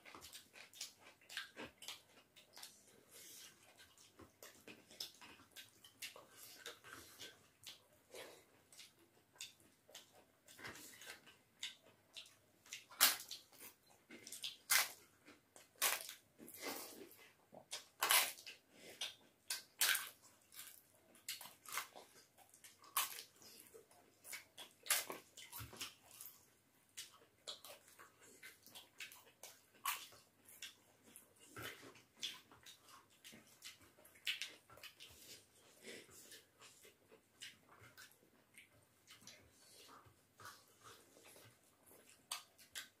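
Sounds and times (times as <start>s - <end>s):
wet chewing and mouth smacking: 0.0s - 43.0s
crisp bites of papad: 15.7s - 16.7s, 17.8s - 18.5s.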